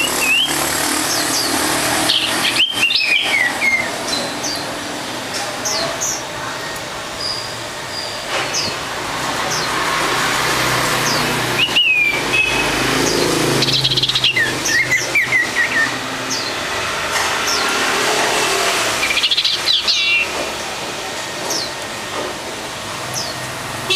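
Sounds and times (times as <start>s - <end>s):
songbird chirping and whistling: 0.0s - 0.6s, 1.2s - 4.6s, 11.1s - 16.5s.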